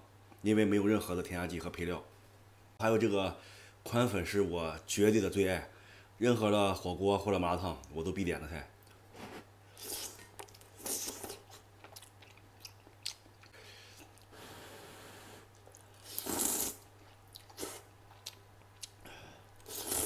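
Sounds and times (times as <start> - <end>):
person chewing noodles: 9.8 - 14.4, 15.0 - 20.0
hissing noodle slurps: 14.8 - 16.8, 19.6 - 20.0.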